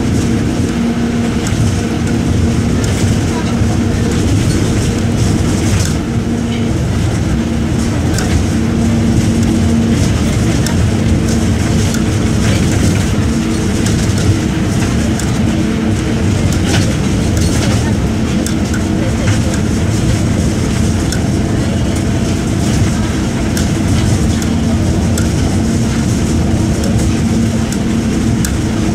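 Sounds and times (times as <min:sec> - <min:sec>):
bus diesel engine droning: 0:00.0 - 0:28.9.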